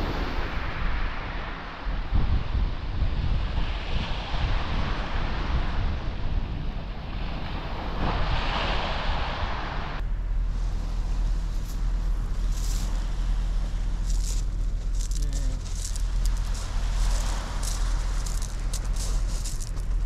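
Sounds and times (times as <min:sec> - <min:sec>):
waves washing up shingle beach: 0:00.0 - 0:06.0, 0:07.2 - 0:20.0
low wind rumble: 0:00.0 - 0:20.0
wind buffeting microphone: 0:00.0 - 0:20.0.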